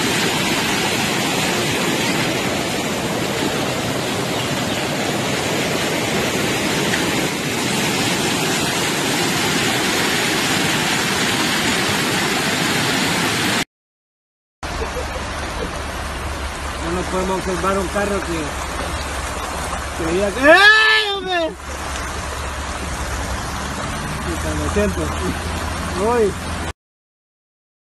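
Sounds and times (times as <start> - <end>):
floodwater rushing: 0.0 - 13.6, 14.7 - 26.7.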